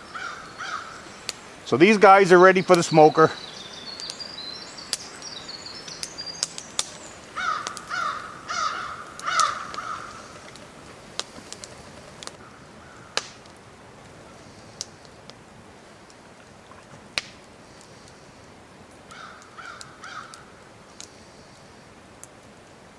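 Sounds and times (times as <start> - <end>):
crow cawing: 0.1 - 1.1, 7.4 - 10.6, 12.4 - 13.2, 19.1 - 20.5.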